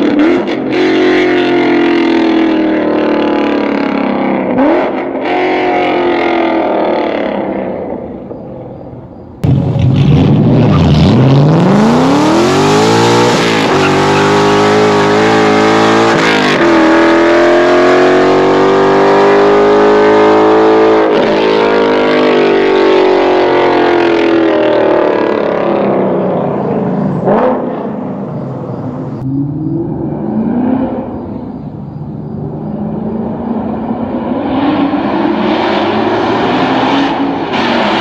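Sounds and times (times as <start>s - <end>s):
car engine accelerating hard: 9.4s - 31.6s, 32.2s - 38.0s.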